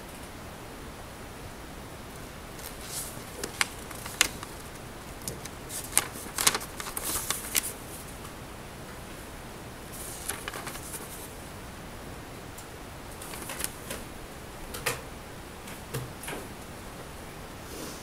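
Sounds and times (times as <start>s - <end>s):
low steady hiss: 0.0s - 18.0s
paper rustling: 2.6s - 8.3s, 9.9s - 11.4s, 13.2s - 14.1s.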